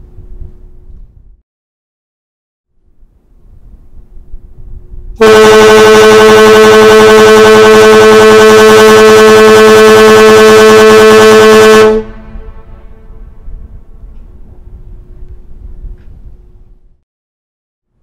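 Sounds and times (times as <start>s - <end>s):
ship whistle blast: 5.2s - 13.7s.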